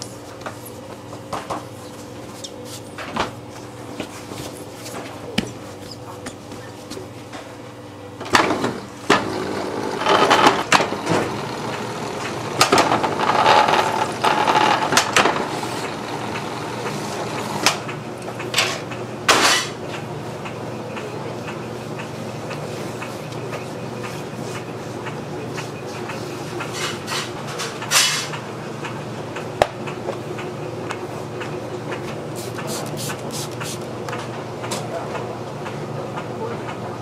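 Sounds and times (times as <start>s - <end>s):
dough sheeter running: 0.0s - 37.0s.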